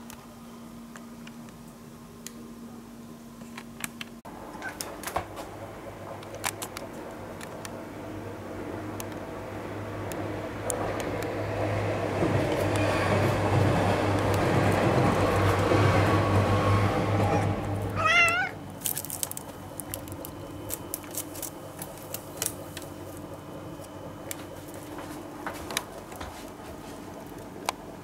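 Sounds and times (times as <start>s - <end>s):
cat meowing: 17.3s - 18.6s.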